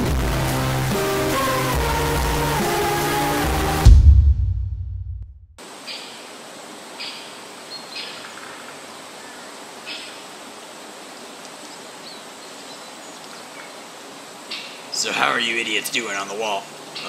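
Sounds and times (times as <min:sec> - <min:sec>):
deep bass boom: 0:03.7 - 0:05.4
steady outdoor hiss: 0:05.6 - 0:17.0.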